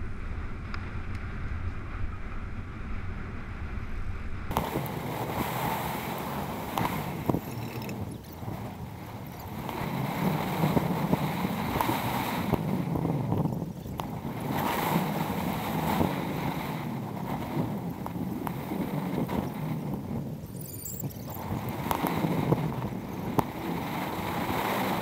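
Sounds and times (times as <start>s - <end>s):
road rumble: 0.0s - 25.0s
wind noise on microphone: 0.0s - 25.0s
small rattles and clicks: 6.8s - 9.8s.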